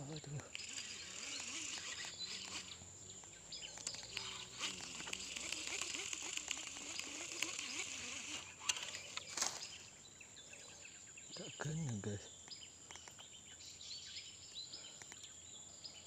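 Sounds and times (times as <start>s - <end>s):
birds chirping: 0.0s - 16.0s
high insect drone: 0.0s - 16.0s
sharp clicks: 0.2s - 9.8s, 11.7s - 13.4s, 14.9s - 15.3s.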